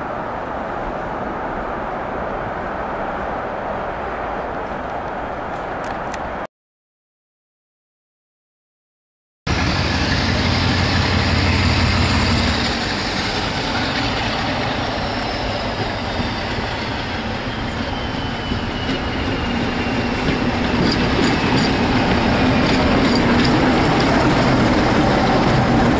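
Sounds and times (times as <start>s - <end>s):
diesel locomotive engine passing: 9.5s - 25.9s
wheels ticking over rails: 18.4s - 25.9s.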